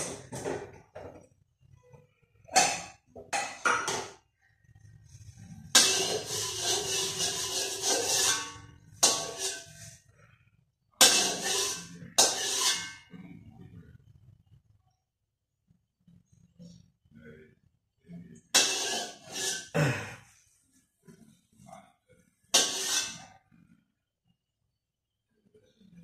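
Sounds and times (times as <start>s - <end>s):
metal spatula scraping a wok: 5.0s - 10.2s, 11.0s - 13.5s, 18.5s - 19.8s, 22.5s - 23.4s.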